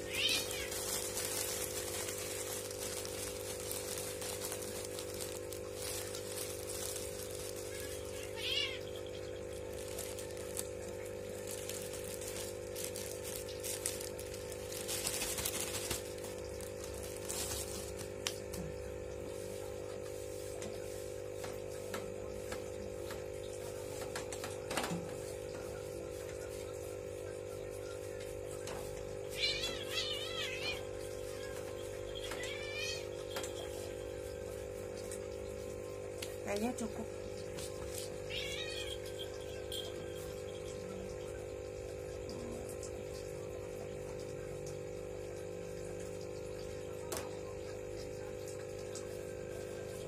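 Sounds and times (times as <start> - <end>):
wood shavings rustling: 0.0 - 18.3
steady hum: 0.0 - 19.8.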